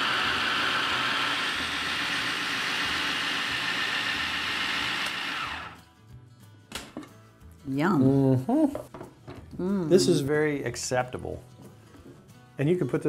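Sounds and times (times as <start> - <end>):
food processor motor running: 0.0 - 5.9.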